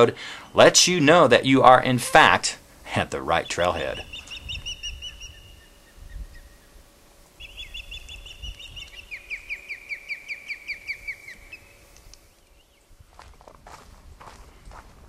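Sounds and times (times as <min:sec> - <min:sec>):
osprey whistled chirps: 0:03.5 - 0:06.8, 0:07.4 - 0:12.9.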